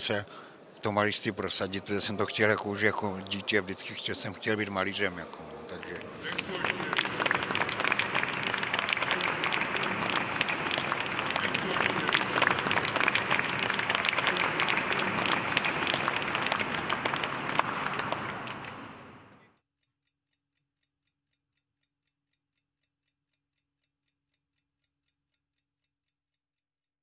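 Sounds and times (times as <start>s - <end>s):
audience applauding: 1.9s - 19.4s.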